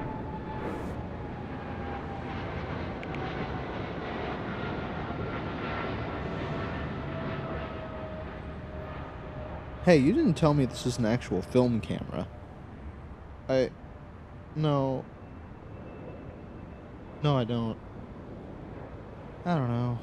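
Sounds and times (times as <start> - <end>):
airplane passing overhead: 0.0 - 20.0.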